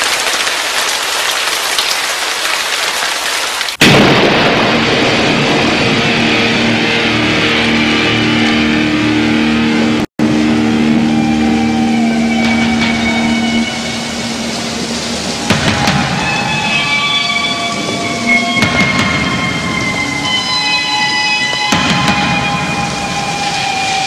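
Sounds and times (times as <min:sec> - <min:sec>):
rain hissing: 0:00.0 - 0:08.4, 0:10.2 - 0:24.0
thunder crack: 0:03.8 - 0:08.9, 0:10.9 - 0:24.0
rumbling storm noise: 0:03.8 - 0:24.0
steady low hum: 0:09.5 - 0:16.2.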